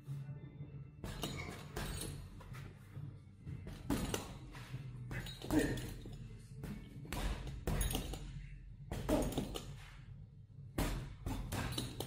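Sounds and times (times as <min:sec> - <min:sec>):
gloves punching heavy bag: 0:01.0 - 0:02.3, 0:03.7 - 0:08.3, 0:08.9 - 0:09.7, 0:10.8 - 0:12.0.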